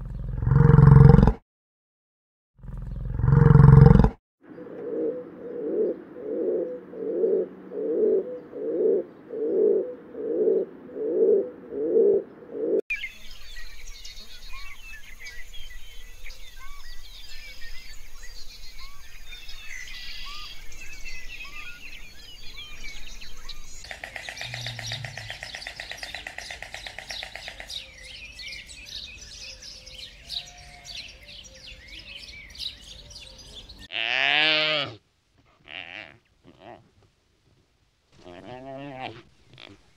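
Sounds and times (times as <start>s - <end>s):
low cooing animal call: 2.7s - 12.8s, 23.9s - 27.8s, 38.2s - 39.9s
birds chirping and whistling: 12.9s - 33.9s.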